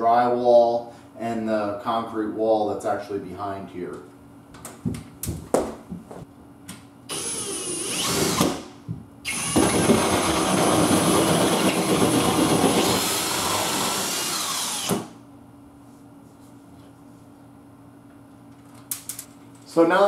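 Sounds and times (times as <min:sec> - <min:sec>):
power drill cutting drywall: 0:07.1 - 0:15.2.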